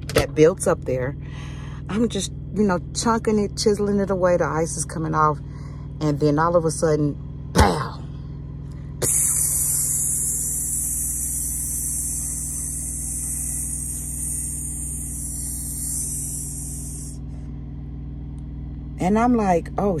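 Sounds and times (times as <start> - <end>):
truck engine idling: 0.0 - 20.0
person hissing through teeth: 9.0 - 17.2.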